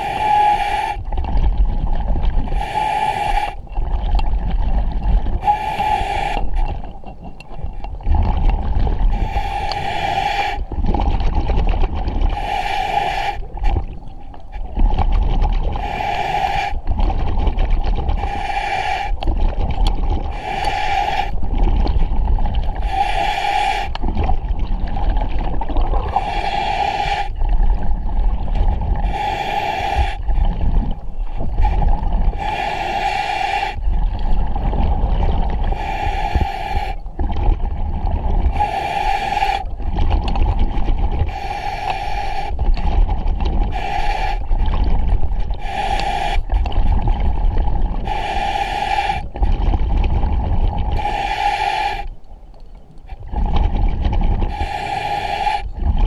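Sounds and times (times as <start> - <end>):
diver breathing through regulator: 0.0 - 1.1, 2.3 - 3.8, 5.4 - 7.0, 9.0 - 10.8, 12.2 - 14.0, 15.6 - 16.9, 17.9 - 19.6, 20.2 - 21.6, 22.6 - 24.3, 25.9 - 27.8, 28.8 - 34.4, 35.5 - 37.3, 38.4 - 40.1, 41.0 - 49.8, 50.9 - 52.2, 53.2 - 56.0.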